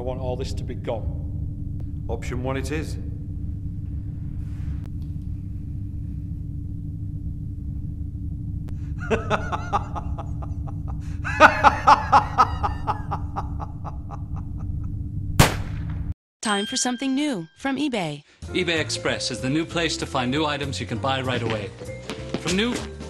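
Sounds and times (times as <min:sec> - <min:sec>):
steady low hum: 0:00.0 - 0:16.2
man laughing: 0:08.8 - 0:14.9.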